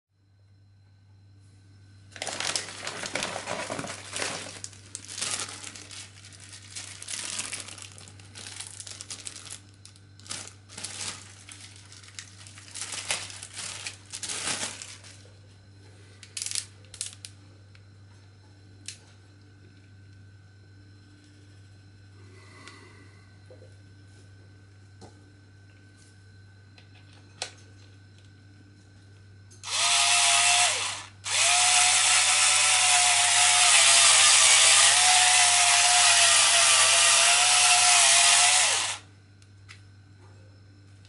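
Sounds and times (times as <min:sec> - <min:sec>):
plastic packaging crinkling: 0:02.1 - 0:15.3, 0:16.3 - 0:17.3.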